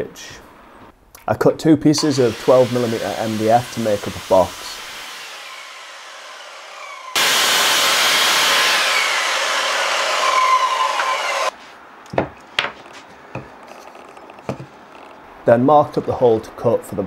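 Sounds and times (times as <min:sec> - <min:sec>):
mitre saw cutting board: 0:02.0 - 0:11.6
light knocks of wood pieces: 0:12.1 - 0:15.2.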